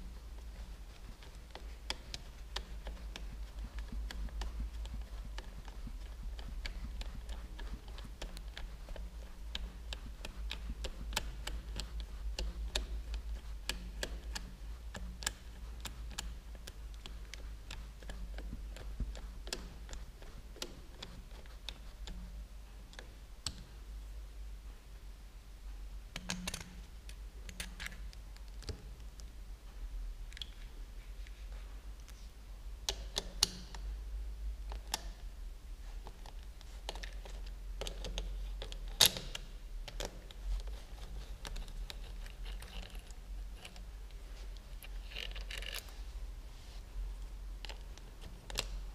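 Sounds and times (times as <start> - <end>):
steady low hum: 0.0 - 48.9.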